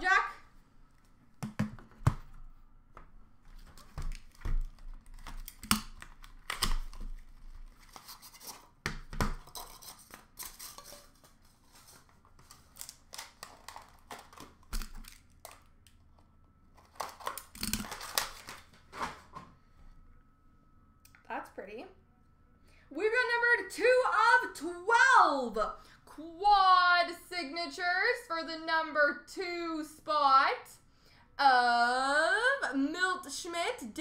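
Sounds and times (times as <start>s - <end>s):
cardboard tearing: 16.8s - 19.3s.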